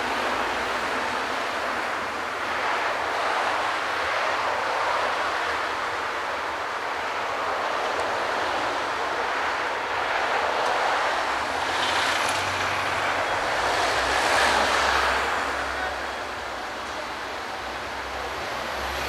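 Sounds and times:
street traffic: 0:00.0 - 0:19.0.

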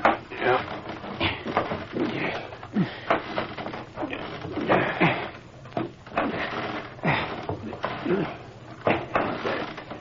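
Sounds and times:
footsteps on wooden ladder rungs: 0:00.0 - 0:10.0.

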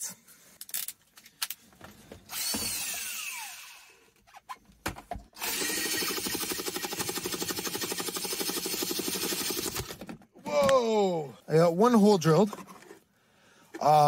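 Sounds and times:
drill boring into plastic: 0:02.3 - 0:04.0, 0:05.4 - 0:10.0
cordless drill whining: 0:02.3 - 0:04.1, 0:05.4 - 0:10.0.

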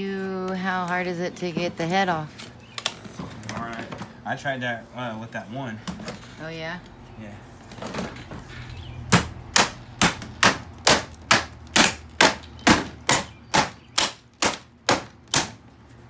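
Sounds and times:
hammer striking plastic: 0:09.1 - 0:15.6.

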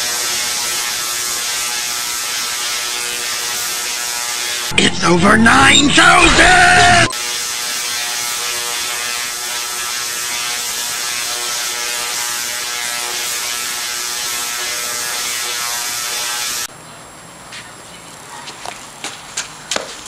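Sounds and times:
tesla coil arcs buzzing: 0:00.0 - 0:04.8, 0:06.0 - 0:16.7.

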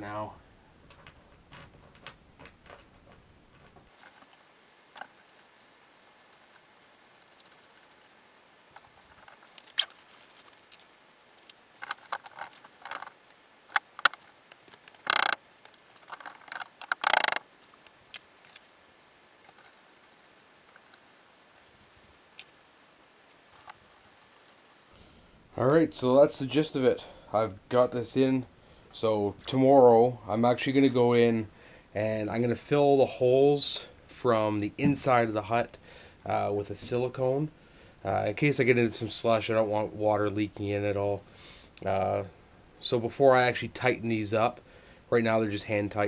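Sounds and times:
rasping noises: 0:03.8 - 0:17.4
small hardware clicking: 0:13.7 - 0:17.4.

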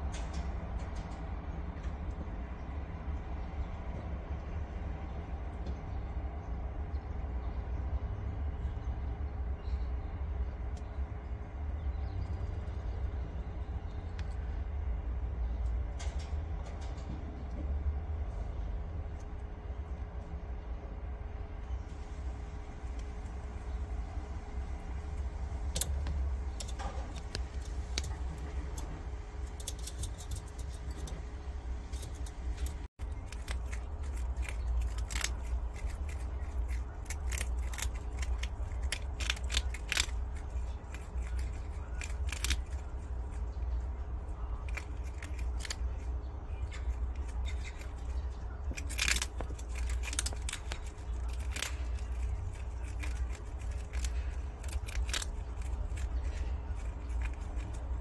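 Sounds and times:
steady low hum: 0:00.0 - 0:58.0
animals crunching food pellets: 0:21.6 - 0:58.0.

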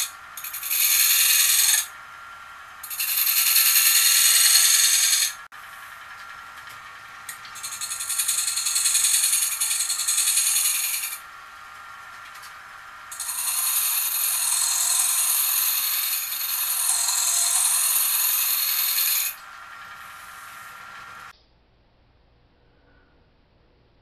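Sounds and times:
gouge scraping spinning wood: 0:00.0 - 0:21.3
wood lathe whining: 0:00.0 - 0:21.3.

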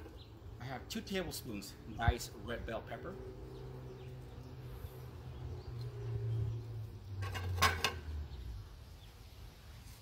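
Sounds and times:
dishes clattering: 0:07.2 - 0:08.1.

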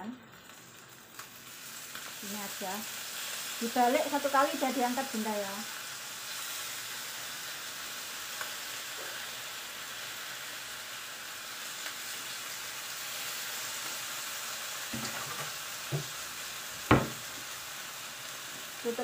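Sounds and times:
fish sizzling in hot oil: 0:00.0 - 0:19.0
short knocks: 0:16.9 - 0:17.2.

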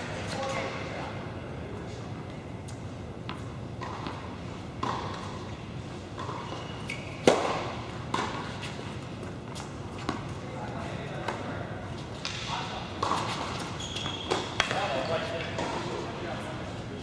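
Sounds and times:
tennis racket hitting ball: 0:04.8 - 0:05.4, 0:07.2 - 0:08.8.

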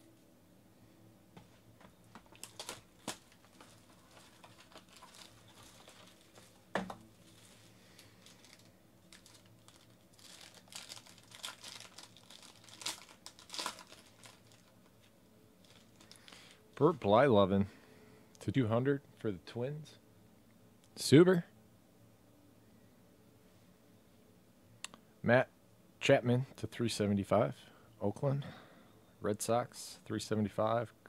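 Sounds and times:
foil card pack crinkling and tearing: 0:02.2 - 0:14.8, 0:15.6 - 0:16.6.

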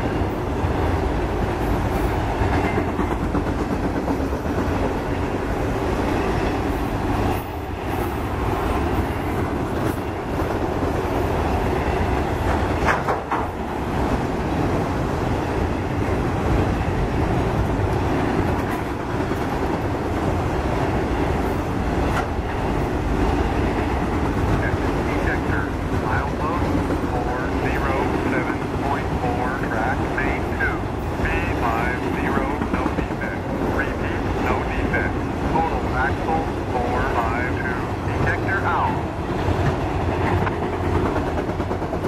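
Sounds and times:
freight train rumbling past: 0:00.0 - 0:42.0
wheels clicking over rail joints: 0:00.8 - 0:14.8, 0:15.8 - 0:25.0.

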